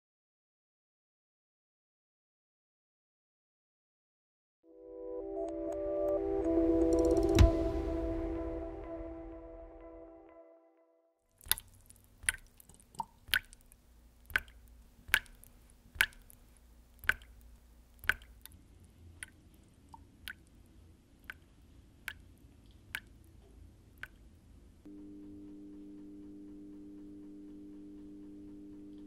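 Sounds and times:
water dripping into sink: 11.4 - 18.6, 19.2 - 20.6, 21.2 - 23.4, 24.0 - 24.3.

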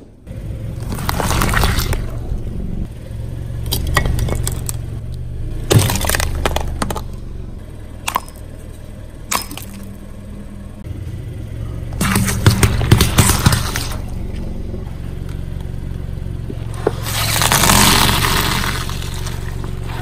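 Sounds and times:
car engine hum: 0.0 - 20.0
tyre crushing crunchy objects: 0.8 - 2.2, 5.6 - 7.2, 12.0 - 14.5, 16.7 - 20.0.

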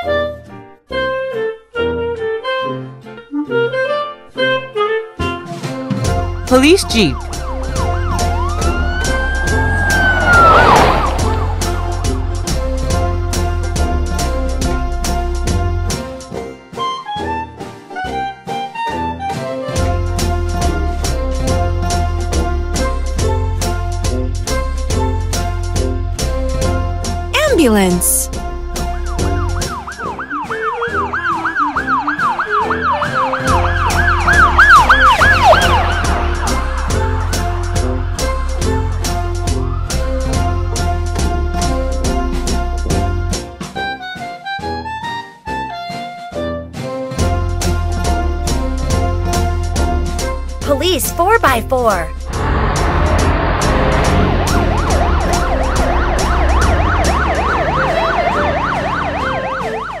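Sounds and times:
children's music: 6.5 - 7.2, 27.4 - 28.3, 50.6 - 52.2
ambulance siren wailing: 6.8 - 12.2, 29.8 - 37.3, 54.2 - 60.0.

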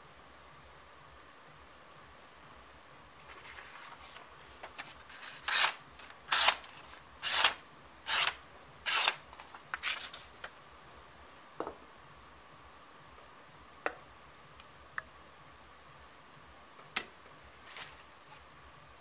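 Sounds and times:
paper rustling: 3.2 - 10.5, 17.6 - 18.4
knife slicing paper: 3.9 - 9.2, 9.8 - 10.3.

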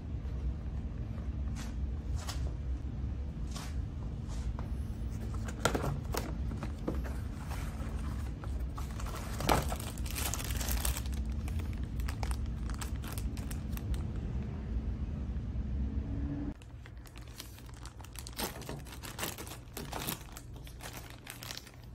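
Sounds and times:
paper and plastic bag crinkling: 5.2 - 14.2, 16.6 - 21.9.

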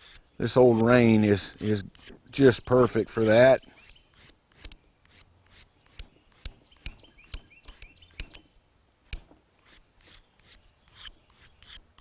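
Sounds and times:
faint birds chirping: 0.0 - 12.0.

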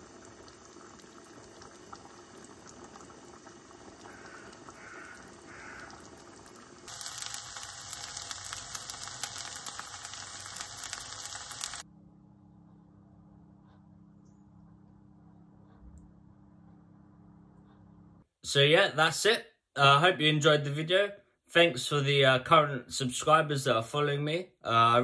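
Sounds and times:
plantain frying in hot oil: 0.0 - 11.8
rice bubbling at a simmer: 0.0 - 11.9.

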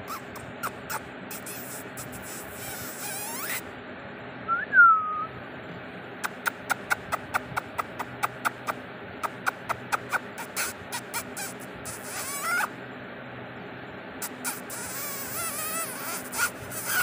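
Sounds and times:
kitten mewing: 0.0 - 3.6, 6.2 - 12.8, 14.2 - 17.0.

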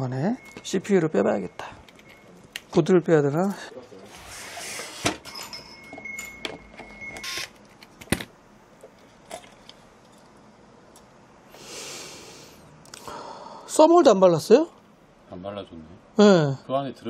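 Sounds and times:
thin steady tone: 0.0 - 2.4.

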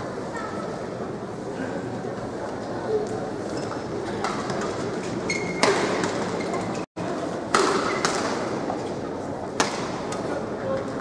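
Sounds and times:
indoor arena background noise: 0.0 - 11.0
rackets hitting shuttlecock: 5.6 - 6.2, 7.5 - 8.6, 9.6 - 10.2.

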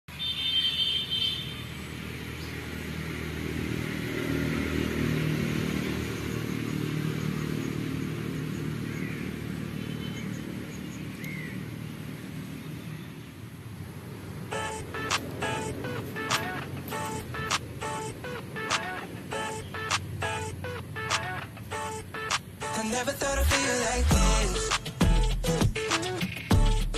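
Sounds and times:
bird chirps: 14.5 - 20.4.

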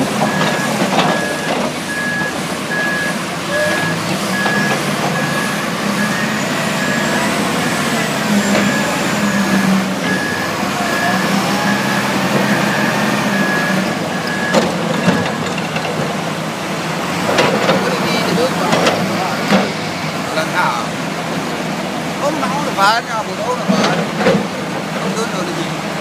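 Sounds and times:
diesel engine running: 0.0 - 26.0
reversing alarm short beeps: 0.3 - 7.3, 8.3 - 15.5.

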